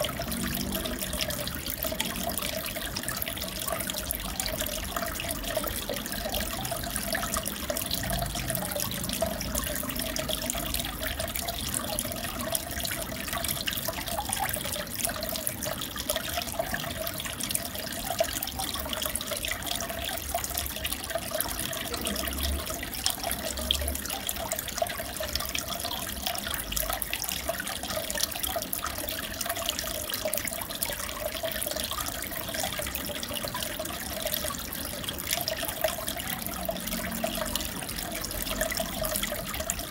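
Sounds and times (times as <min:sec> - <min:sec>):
bubbles popping at surface: 0:00.0 - 0:13.2
aquarium water bubbling: 0:00.0 - 0:39.9.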